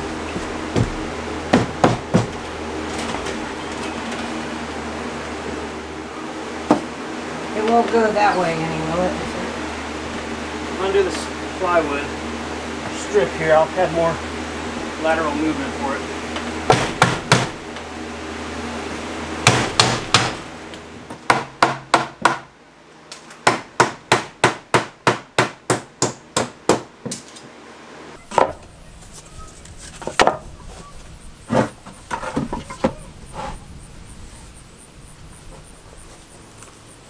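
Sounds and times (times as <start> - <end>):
hammer striking wood: 0.7 - 2.4, 6.7 - 6.9, 16.7 - 17.6, 19.4 - 20.4, 21.1 - 22.5, 23.4 - 27.2.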